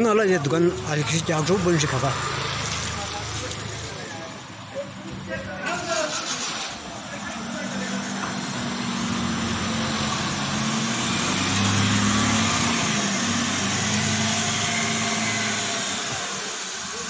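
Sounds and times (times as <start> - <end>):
tires on wet road: 0.0 - 17.0
van engine driving past: 5.5 - 16.5.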